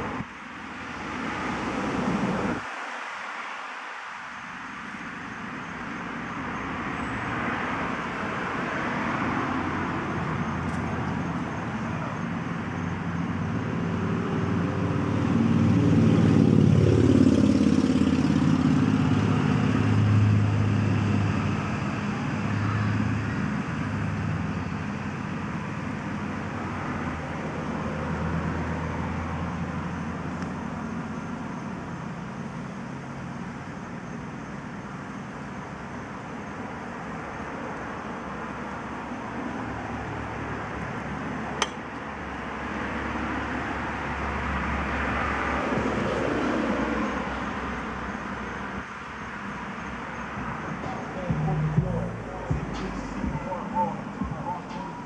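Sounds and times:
traffic hum: 0:00.0 - 0:55.0
vehicle driving past: 0:13.4 - 0:25.2, 0:50.0 - 0:55.0.

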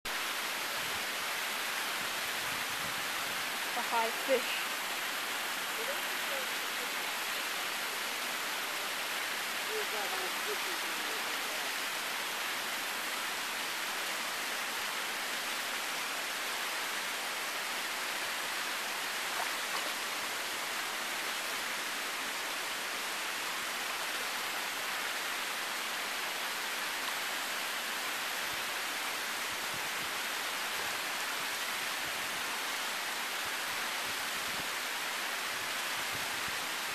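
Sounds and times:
running water hissing: 0:01.5 - 0:12.0.

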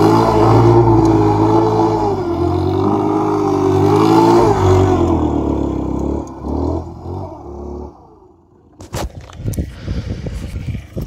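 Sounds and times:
motorcycle engine revving past: 0:00.0 - 0:08.2.

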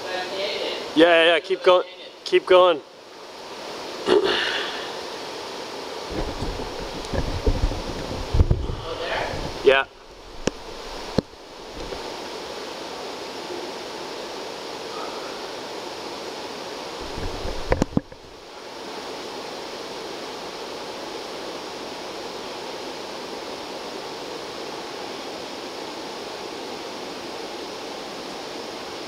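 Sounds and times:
rushing background noise: 0:04.8 - 0:29.0
low thumps: 0:06.1 - 0:12.1, 0:17.0 - 0:18.3.

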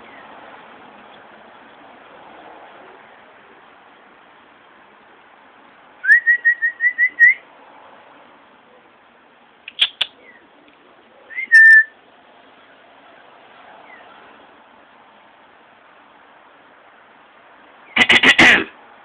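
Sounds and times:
mouth clicks: 0:09.6 - 0:10.2, 0:18.0 - 0:18.7
person whistling: 0:11.4 - 0:11.9.

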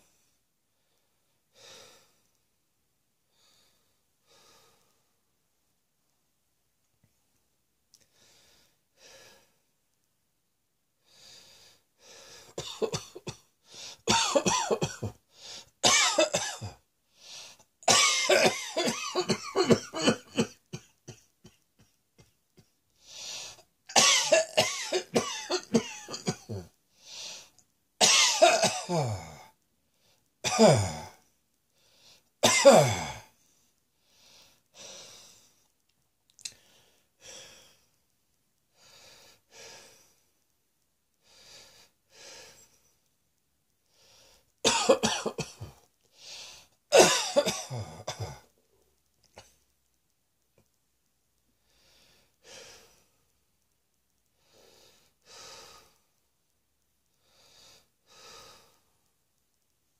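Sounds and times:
person coughing hard: 0:12.6 - 0:13.4, 0:14.1 - 0:15.2, 0:15.8 - 0:16.8, 0:17.9 - 0:21.6, 0:23.9 - 0:26.7, 0:28.0 - 0:29.5, 0:30.4 - 0:31.1, 0:32.4 - 0:33.3, 0:44.7 - 0:45.8, 0:46.9 - 0:48.5.

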